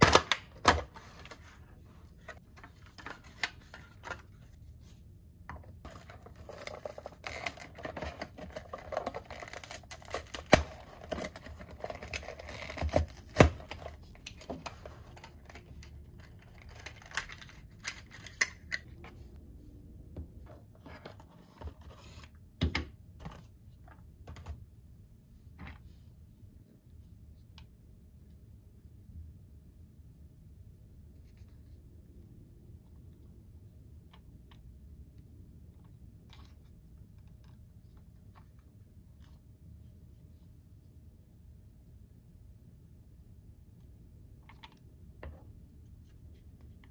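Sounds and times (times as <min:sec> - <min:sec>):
packaging rustling: 0:05.9 - 0:18.9.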